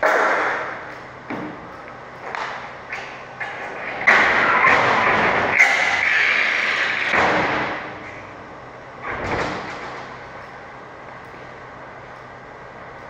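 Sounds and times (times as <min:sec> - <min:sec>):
metal knocks and clanks: 0:00.0 - 0:06.1.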